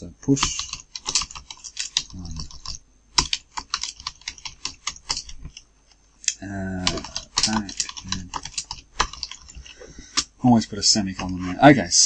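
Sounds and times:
keyboard typing: 0.3s - 5.6s, 6.4s - 10.3s.

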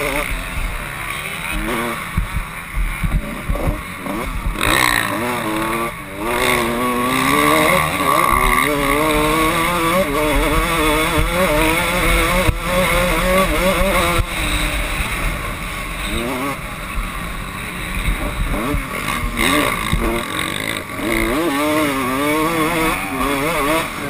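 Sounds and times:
motorcycle engine revving hard: 0.0s - 24.0s.

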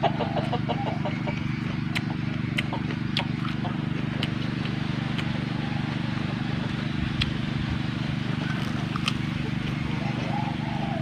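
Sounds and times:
steady low drone: 0.0s - 11.0s
cucumber being chewed: 1.3s - 5.6s, 7.0s - 7.7s, 8.4s - 9.9s.

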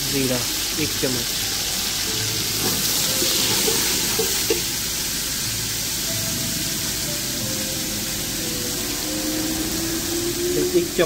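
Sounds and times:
spice paste sizzling in hot oil: 0.0s - 11.0s.

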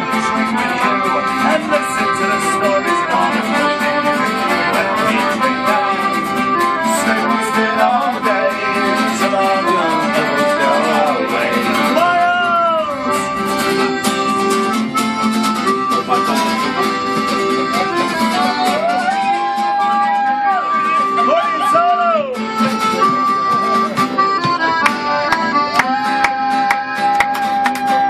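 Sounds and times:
man singing: 0.0s - 13.1s
accordion: 0.0s - 28.0s
fiddle: 0.0s - 28.0s
strummed acoustic guitar: 0.0s - 28.0s.

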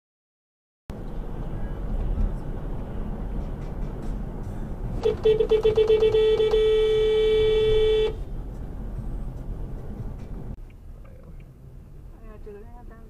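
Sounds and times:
road rumble from moving car: 0.9s - 13.0s
car horn honking: 5.0s - 8.3s.

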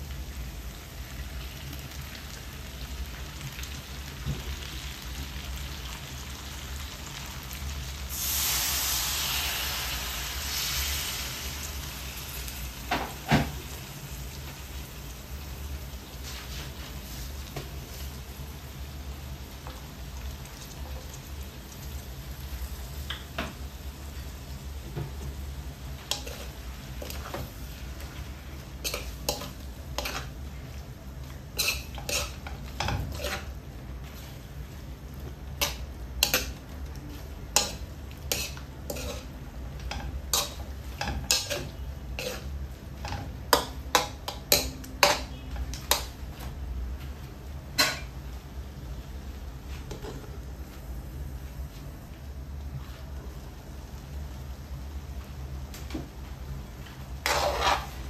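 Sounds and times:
metal spoon scraping a wok: 26.1s - 27.4s, 28.8s - 30.3s, 31.6s - 33.6s, 37.5s - 39.3s, 39.9s - 43.2s, 57.2s - 58.0s.

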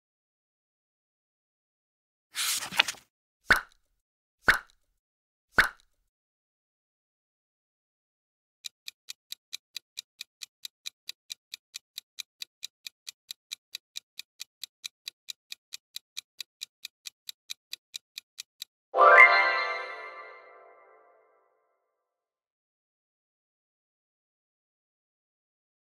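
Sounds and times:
fast clock ticking: 8.7s - 18.8s.

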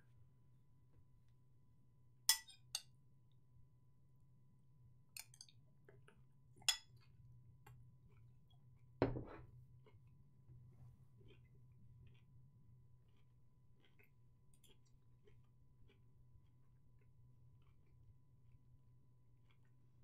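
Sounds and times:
dull knock: 9.0s - 9.4s.

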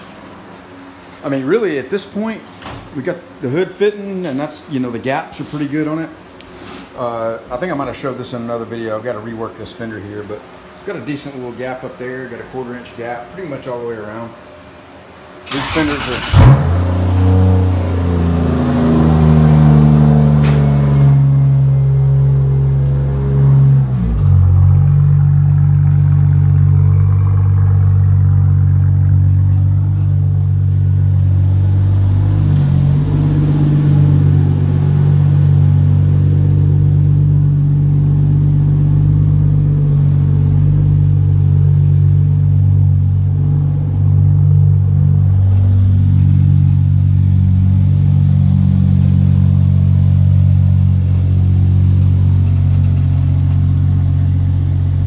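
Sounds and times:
car engine idling: 15.5s - 55.0s.

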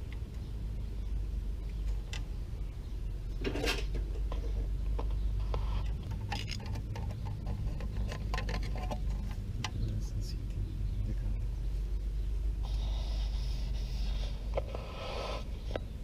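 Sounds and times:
steady low rumble: 0.0s - 16.0s
clicks and taps of metal parts: 5.8s - 9.8s.

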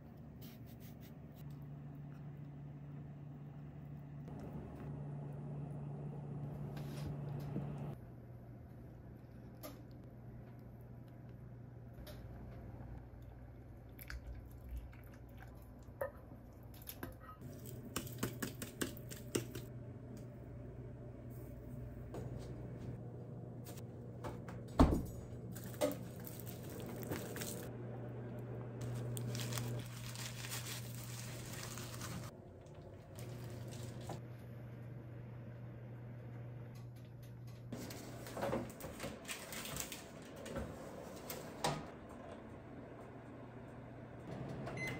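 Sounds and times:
steady low hum: 0.0s - 16.8s, 17.4s - 38.4s
food being handled by hand: 25.5s - 27.7s, 28.8s - 32.3s.

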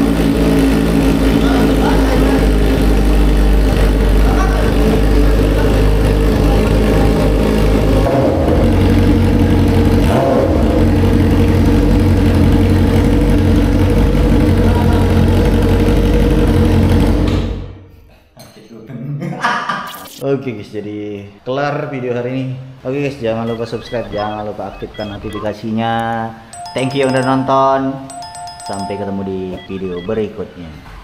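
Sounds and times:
motorcycle engine idling and revving: 0.0s - 17.7s.

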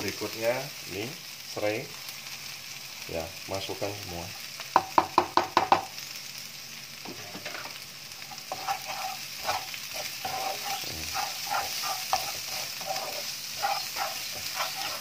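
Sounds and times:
vegetables sizzling in a wok: 0.0s - 15.0s
wooden spatula scraping a pan: 7.1s - 15.0s.

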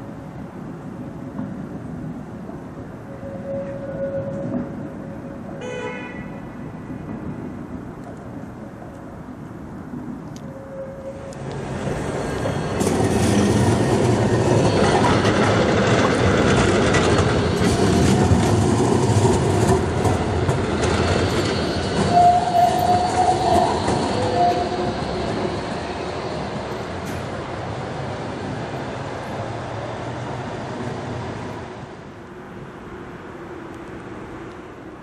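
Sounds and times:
tram wheels rumbling on rails: 0.0s - 35.0s
high wheel squeals: 21.2s - 26.5s.

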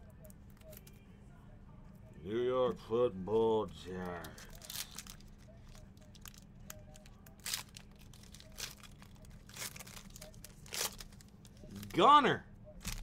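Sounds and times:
plastic packaging crinkling: 4.0s - 12.0s, 12.8s - 13.0s.

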